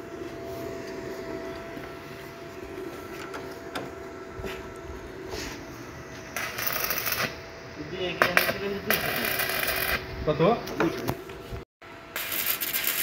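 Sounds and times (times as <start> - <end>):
steady background hum: 0.0 - 13.0
welding arc crackle and hiss: 5.4 - 10.4, 12.1 - 13.0.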